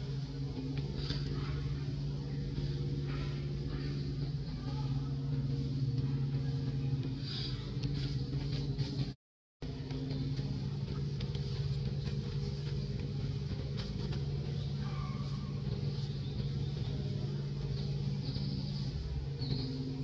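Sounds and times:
engine humming: 0.0 - 20.0
faint high chirps: 14.5 - 20.0.

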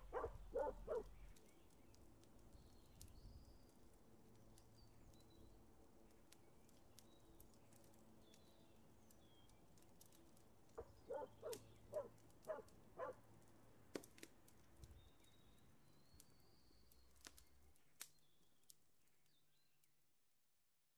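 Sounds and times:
animal calls: 0.0 - 1.3, 10.8 - 13.2
small birds chirping: 0.0 - 13.4, 14.6 - 19.9.

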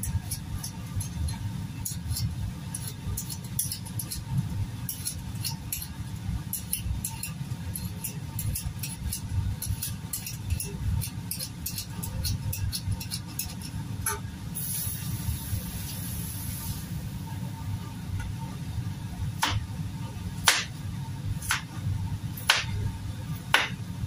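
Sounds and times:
peeler scraping vegetable: 0.0 - 5.9, 6.5 - 13.7.

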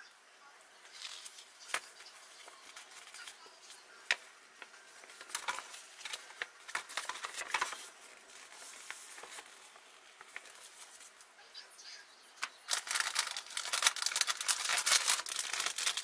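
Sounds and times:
paper rustling: 0.8 - 11.3, 12.4 - 16.0.

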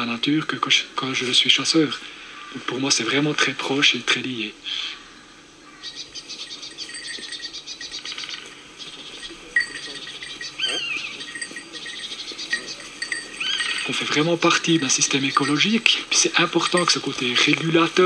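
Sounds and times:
insects chirping: 4.7 - 18.0.

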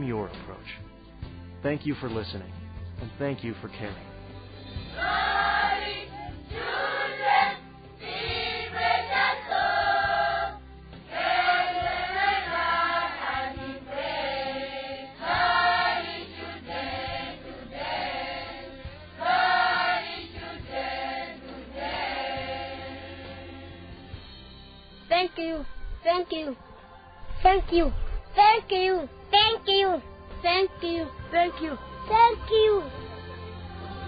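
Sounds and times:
children's choir singing: 4.9 - 23.9.

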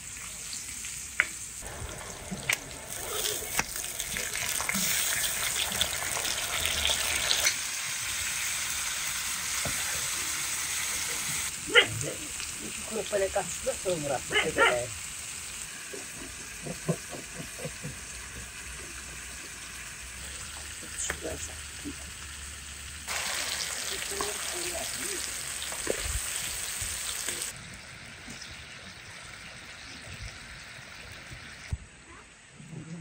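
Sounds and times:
food frying sizzle: 0.0 - 31.8.

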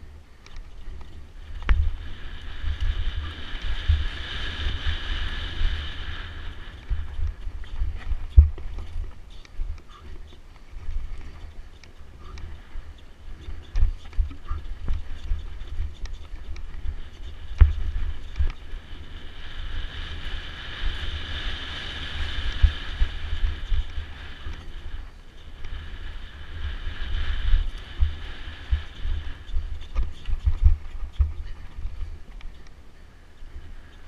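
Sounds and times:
steady hiss: 0.0 - 34.0
wind buffeting microphone: 0.0 - 34.0
bike knocks and rattles: 6.8 - 11.8, 27.8 - 32.6.

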